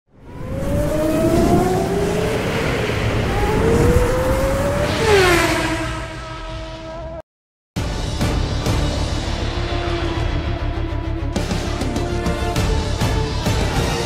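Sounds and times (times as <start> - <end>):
race car engine revving past: 0.2 - 7.2.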